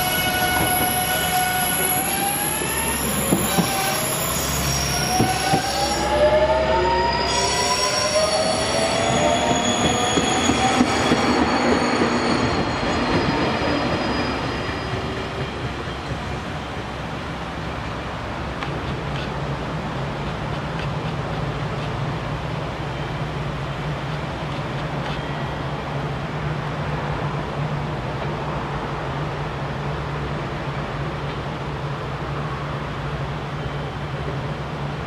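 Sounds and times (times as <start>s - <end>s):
train whining tones: 0.0s - 18.1s.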